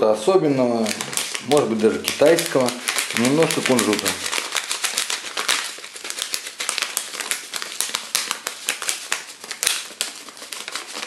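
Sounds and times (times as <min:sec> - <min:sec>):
plastic packet crinkling: 0:00.6 - 0:11.0
seeds shaken out: 0:01.0 - 0:09.8.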